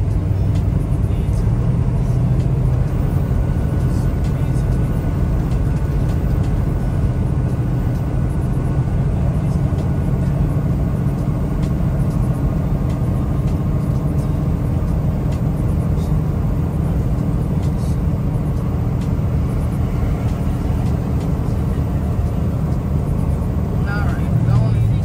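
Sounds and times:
truck diesel engine rumbling: 0:00.0 - 0:25.0.

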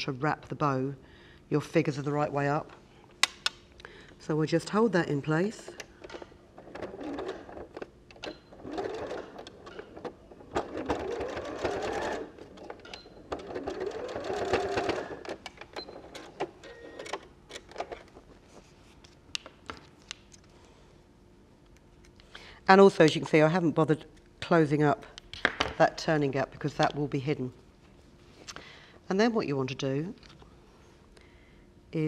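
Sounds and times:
electric sewing machine stitching: 0:06.6 - 0:17.1.

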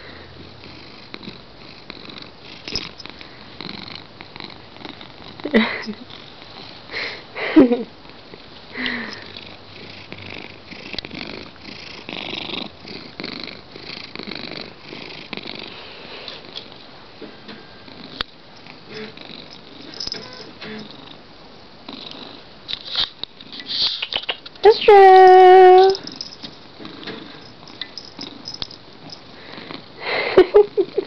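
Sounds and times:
cat purring: 0:00.1 - 0:06.9, 0:09.0 - 0:16.8, 0:17.7 - 0:21.2, 0:21.8 - 0:22.5.

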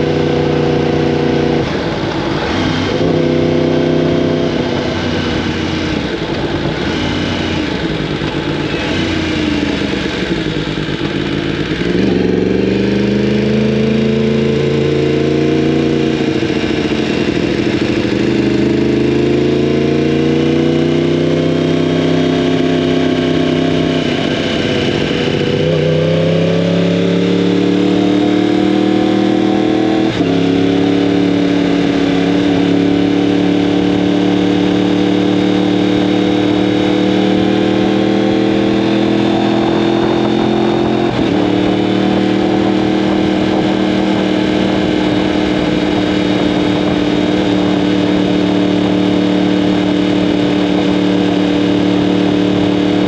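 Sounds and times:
motorcycle engine accelerating: 0:00.0 - 0:53.0.

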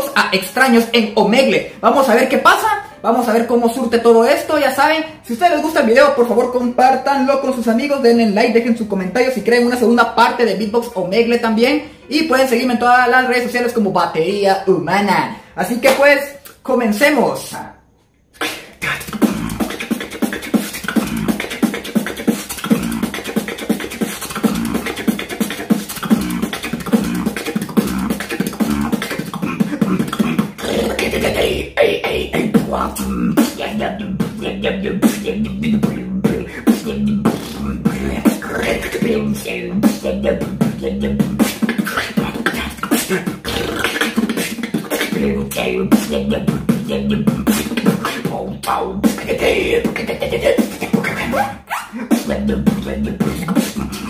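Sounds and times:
man beatboxing: 0:00.0 - 0:17.7, 0:18.4 - 0:54.0
deep bass tone: 0:26.0 - 0:31.5, 0:32.3 - 0:41.5, 0:45.2 - 0:50.0, 0:52.2 - 0:54.0.

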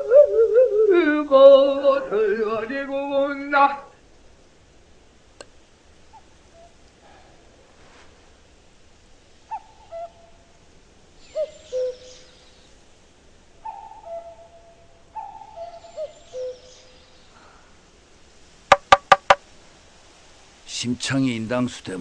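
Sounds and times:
cuckoo calling: 0:00.0 - 0:02.7, 0:06.0 - 0:07.1, 0:09.5 - 0:12.8, 0:13.6 - 0:17.7, 0:18.7 - 0:19.4.

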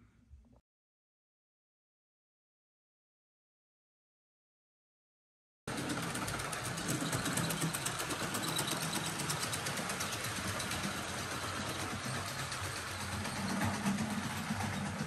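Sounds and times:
model train running on track: 0:05.7 - 0:15.0.

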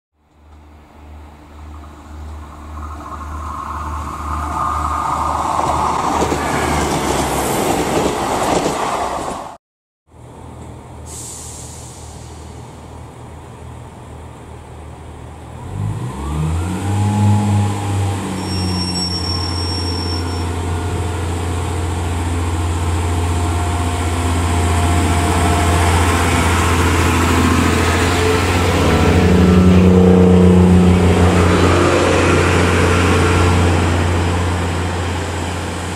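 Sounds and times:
train running along line: 0:00.3 - 0:09.6, 0:16.6 - 0:35.9
diesel engine revving: 0:15.6 - 0:18.9, 0:20.6 - 0:35.9.

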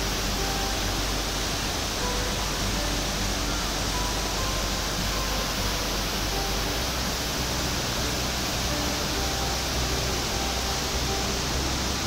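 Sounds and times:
waterfall rushing over rock: 0:00.0 - 0:12.0.

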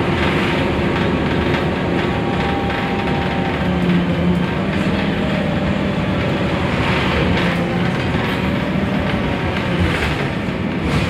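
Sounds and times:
bus engine drone: 0:00.0 - 0:11.0
road noise: 0:00.0 - 0:11.0.

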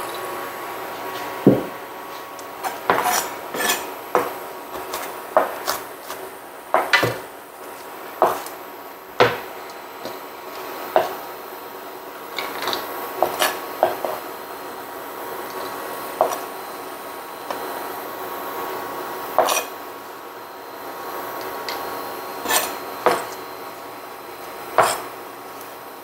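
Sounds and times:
knife chopping on plastic board: 0:01.4 - 0:01.8, 0:02.9 - 0:06.2, 0:06.8 - 0:07.2, 0:08.2 - 0:08.5, 0:09.2 - 0:10.2, 0:13.2 - 0:14.2, 0:16.2 - 0:16.4, 0:19.4 - 0:19.7, 0:22.4 - 0:23.4, 0:24.8 - 0:25.1.

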